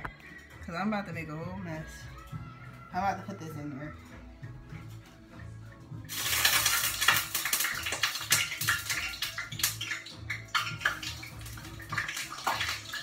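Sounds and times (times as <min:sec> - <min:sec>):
deep-frying oil sizzling and popping: 0:06.0 - 0:13.0.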